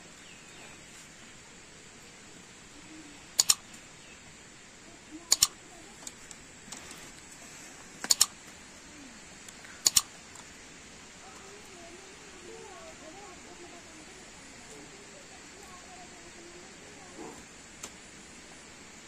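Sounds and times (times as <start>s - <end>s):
low outdoor background: 0.0s - 19.0s
mouse double clicks: 3.4s - 3.8s, 5.2s - 6.2s, 8.0s - 8.4s, 9.8s - 10.1s.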